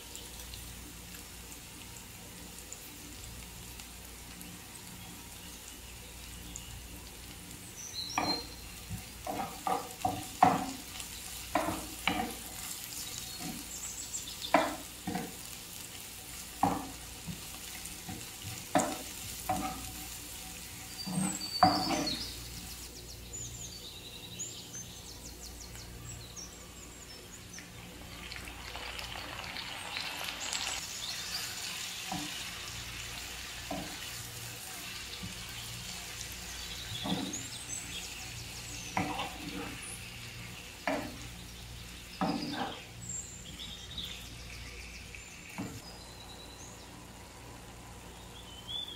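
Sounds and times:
onion and garlic sizzling in oil: 0.0s - 48.9s
wooden spatula scraping a pan: 8.2s - 10.9s, 16.6s - 22.4s, 38.9s - 39.9s, 42.2s - 42.9s.

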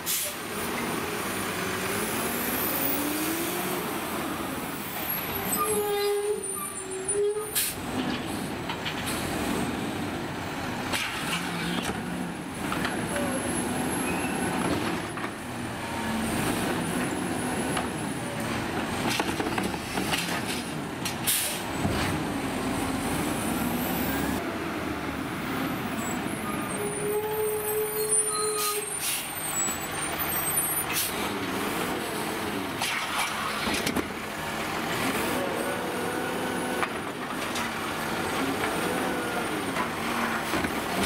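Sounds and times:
diesel engine revving: 0.1s - 5.6s, 7.6s - 19.1s, 29.0s - 41.0s.

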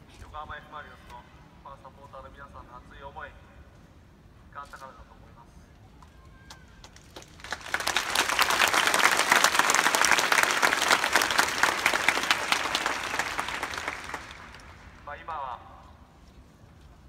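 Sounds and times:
crowd applauding: 7.0s - 15.0s.

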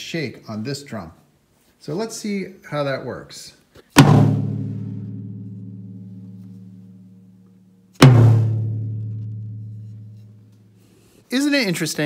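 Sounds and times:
floor tom sympathetic vibration: 4.0s - 10.6s.

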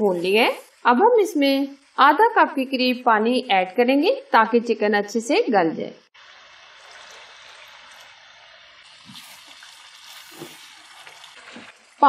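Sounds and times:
chicken sizzling in a pan: 6.2s - 12.0s
water being poured: 6.2s - 12.0s.

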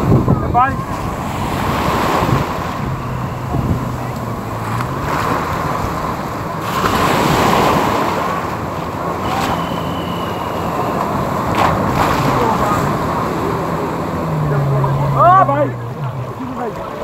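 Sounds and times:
wind buffeting microphone: 0.0s - 9.4s
jet ski engine droning: 0.0s - 17.0s
surf breaking: 0.0s - 17.0s.

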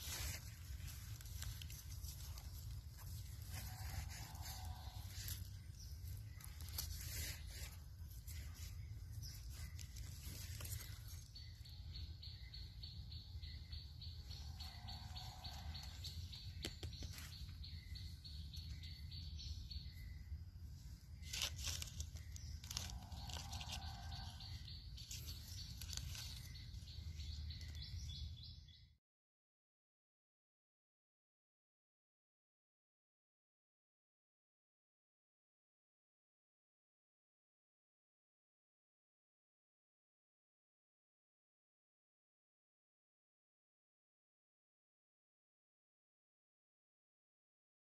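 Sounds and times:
dry leaves rustling: 0.0s - 11.5s, 14.3s - 19.4s, 20.8s - 28.2s.

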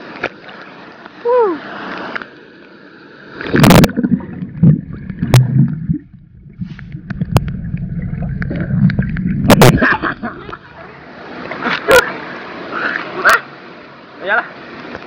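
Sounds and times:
water splashing: 3.3s - 13.4s
underwater rumble and gurgling: 3.4s - 11.2s.

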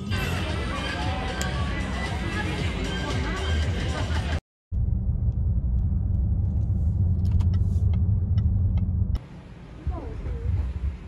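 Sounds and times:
car road rumble: 3.9s - 11.0s.

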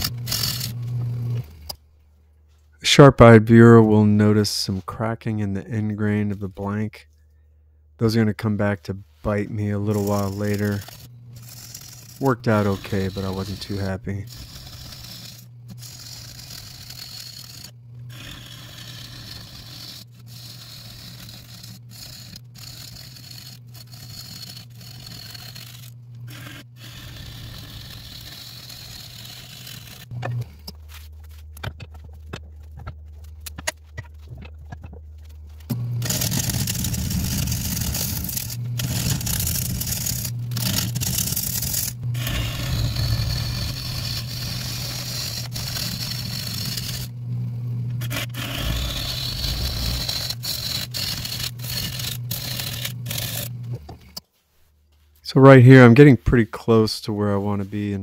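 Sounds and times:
lathe motor hum: 9.9s - 32.0s, 35.2s - 54.2s
gouge cutting wood hiss: 36.0s - 47.1s, 48.0s - 53.5s.

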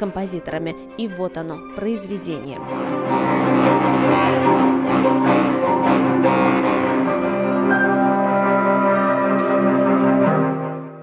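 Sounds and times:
bowed strings: 0.0s - 11.0s
bass clarinet low notes: 2.6s - 11.0s.

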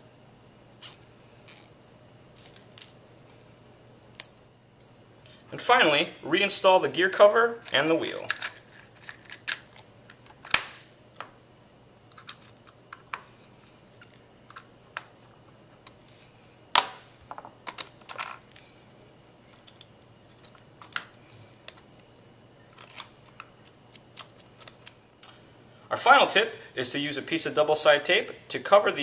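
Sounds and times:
plastic parts being handled: 7.7s - 10.6s, 22.7s - 25.0s.

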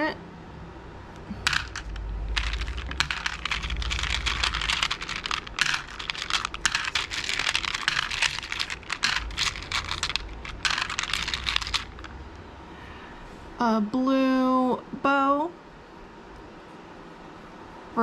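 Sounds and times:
beads clicking and rattling: 1.3s - 12.2s.

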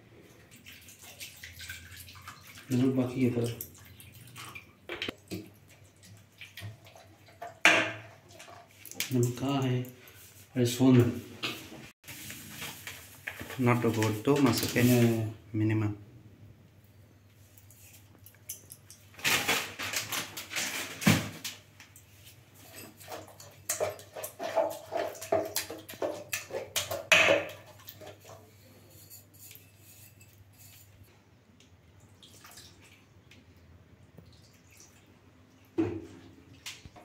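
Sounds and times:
tumbler mashing in pan: 22.5s - 31.0s.

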